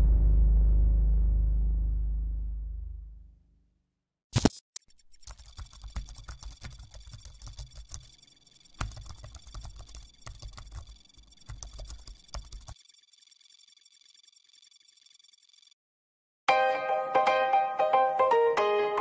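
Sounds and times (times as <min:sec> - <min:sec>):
loud burst of noise: 0:00.0 - 0:03.2
keyboard typing clicks: 0:04.4 - 0:15.7.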